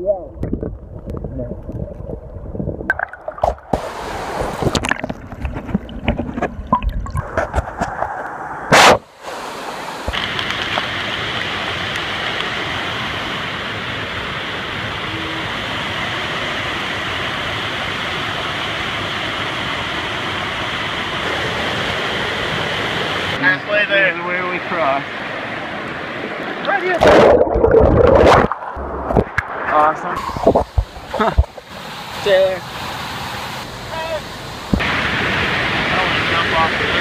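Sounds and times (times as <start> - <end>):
water splashing close: 0.4 - 12.6, 26.2 - 33.0.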